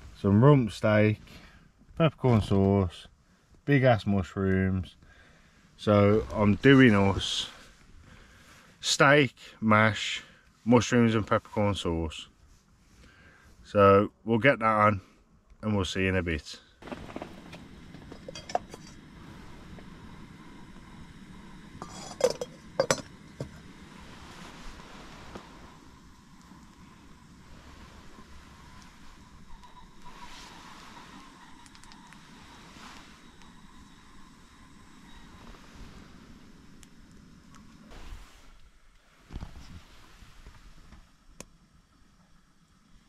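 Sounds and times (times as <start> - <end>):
gas burner hissing: 5.0 - 11.2, 16.8 - 43.0.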